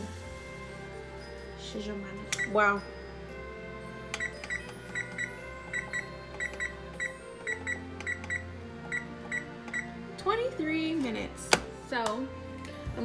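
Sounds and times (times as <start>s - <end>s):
oven control panel beeps: 4.1s - 10.0s.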